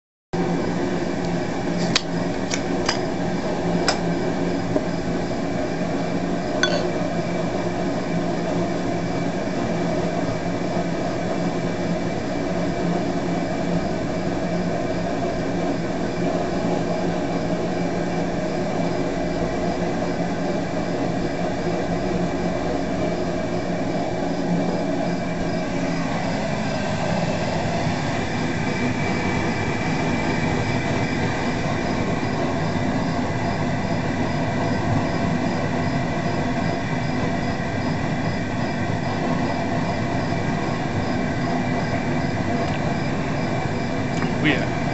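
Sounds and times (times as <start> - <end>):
steady machine hum: 0.4 - 44.9
glass clinks: 6.6 - 7.0.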